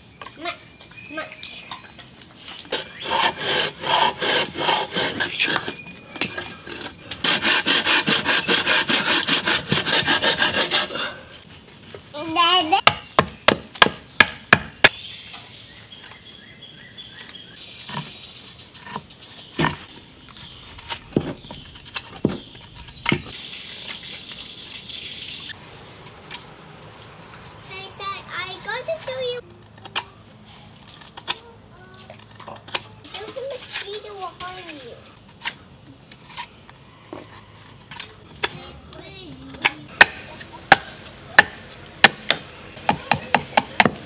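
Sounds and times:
scraping strokes on wood: 2.3s - 12.5s
hatchet chopping wood: 7.2s - 10.9s, 12.8s - 15.0s, 39.6s - 44.0s.

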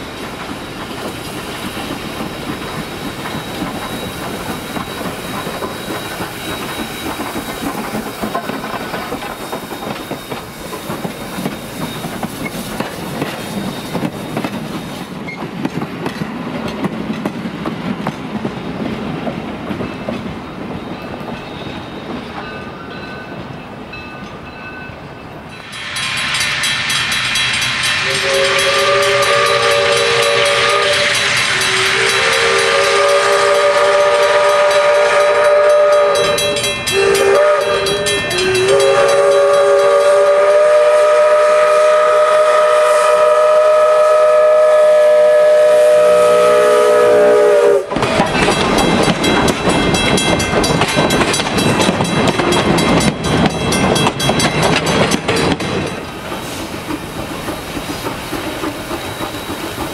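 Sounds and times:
steam locomotive chime whistle: 0.0s - 15.4s, 20.7s - 56.6s
wheels clicking over rail joints: 0.0s - 23.1s, 47.8s - 59.9s
train cars rumbling past: 0.0s - 59.9s.

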